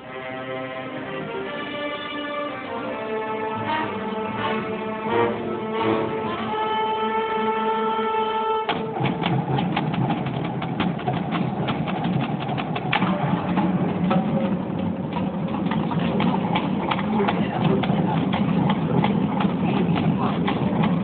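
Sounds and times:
marching band sustained chord: 0.0s - 21.0s
rapid snare drum strokes: 8.7s - 21.0s.

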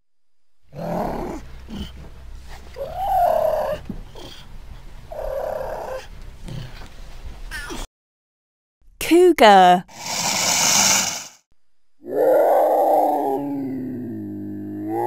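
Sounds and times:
cougar snarling calls: 2.8s - 4.5s, 5.1s - 6.8s, 12.0s - 15.0s.

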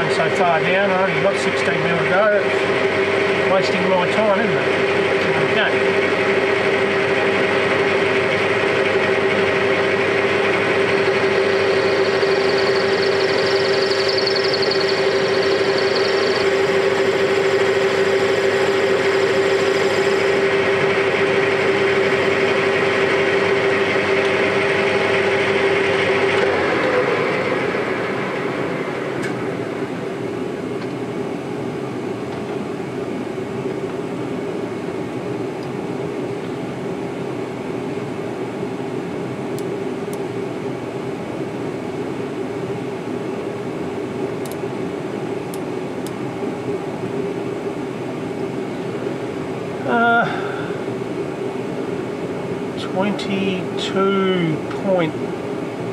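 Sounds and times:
metal lathe whining: 0.0s - 30.1s
low hum: 4.5s - 31.8s.

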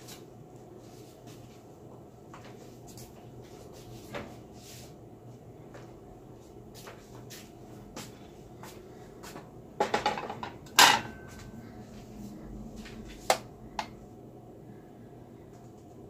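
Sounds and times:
plate clattering against dishes: 9.8s - 11.2s.

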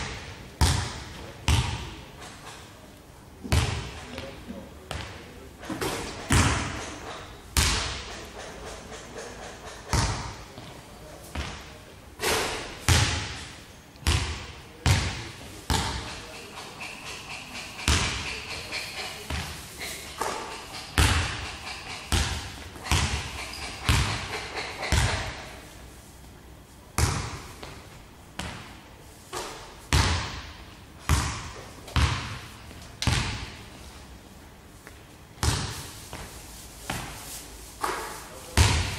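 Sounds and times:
basketball hitting backboard and rim: 0.0s - 2.0s, 3.5s - 4.0s, 4.9s - 8.7s, 9.6s - 10.7s, 11.3s - 25.6s, 27.0s - 27.8s, 28.4s - 28.7s, 29.3s - 33.6s, 35.4s - 36.2s, 37.8s - 38.9s
basketball bouncing on hardwood floor: 0.1s - 1.8s, 6.3s - 6.9s, 9.9s - 10.7s, 14.0s - 16.1s, 17.8s - 18.4s, 20.2s - 25.5s, 29.9s - 33.6s, 35.4s - 36.2s, 38.6s - 38.9s.

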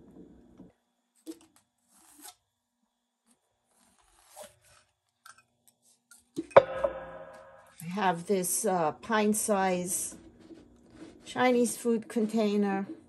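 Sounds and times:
knock with ringing tone: 6.5s - 7.8s
pencil scratching on paper: 10.0s - 13.0s.

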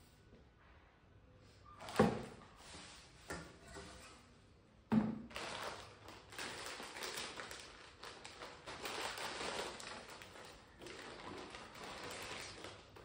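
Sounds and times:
plastic bag crinkling: 5.2s - 13.0s.

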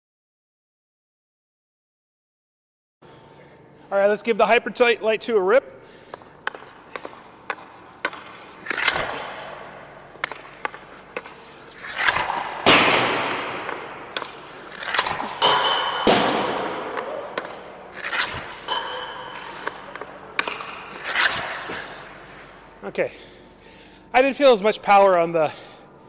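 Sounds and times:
puck clattering with echo: 4.8s - 25.8s
hockey stick cracking on ice: 6.0s - 22.2s.

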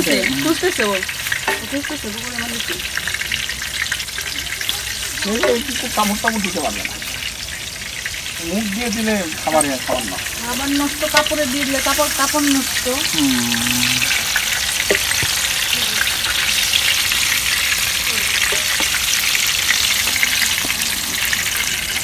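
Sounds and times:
eggplant sizzling in oil: 0.0s - 22.0s.

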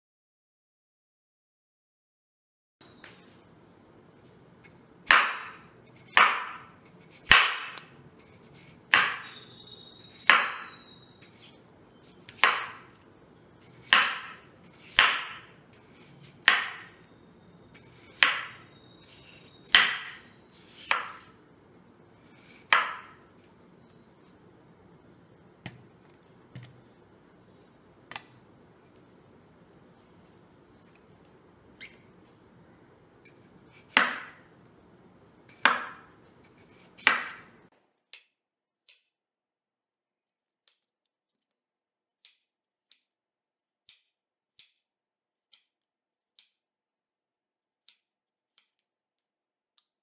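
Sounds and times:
knife chopping on wooden board: 5.0s - 7.9s, 8.8s - 9.3s, 10.1s - 10.7s, 12.2s - 13.0s, 13.6s - 17.0s, 17.8s - 18.6s, 19.2s - 21.3s, 22.4s - 23.3s, 26.5s - 26.9s, 33.8s - 34.4s, 35.5s - 36.1s, 36.7s - 37.5s.

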